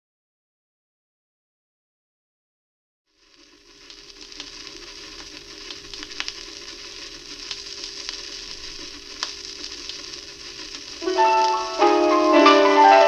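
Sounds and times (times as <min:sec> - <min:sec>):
vinyl record hiss: 0:03.1 - 0:13.0
vinyl clicks and pops: 0:03.2 - 0:12.4.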